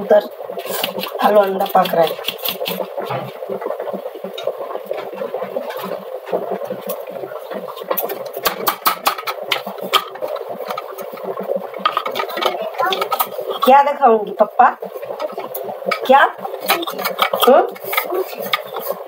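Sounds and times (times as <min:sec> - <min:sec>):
sieve rasping: 0:04.9 - 0:13.9, 0:14.9 - 0:19.0.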